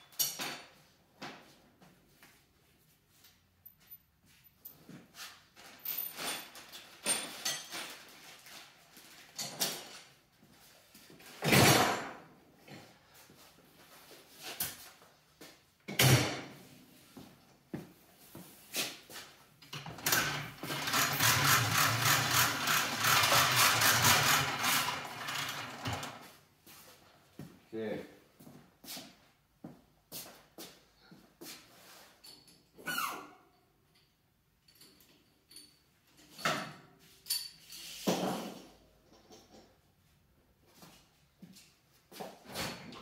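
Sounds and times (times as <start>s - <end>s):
power tool rattling: 19.7s - 26.3s.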